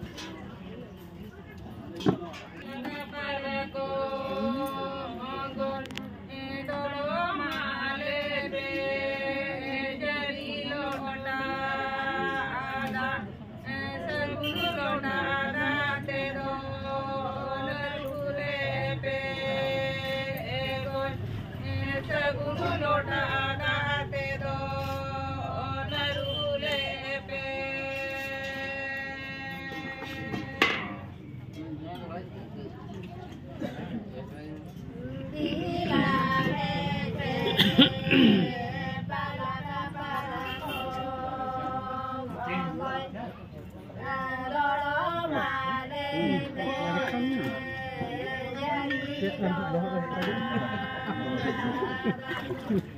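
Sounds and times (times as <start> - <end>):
voices chanting in held notes: 35.3 - 43.4, 44.0 - 52.9.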